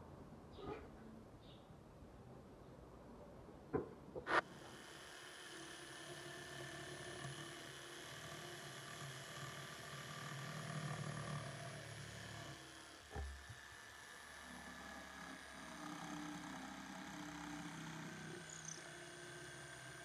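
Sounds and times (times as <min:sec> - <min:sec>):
knock: 0:03.7 - 0:04.3
electric saw cutting wood: 0:04.3 - 0:20.0.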